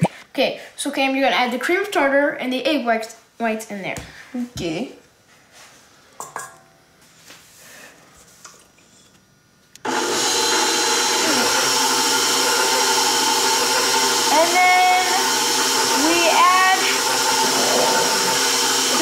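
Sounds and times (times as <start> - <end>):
stand mixer motor running: 9.9 - 19.0.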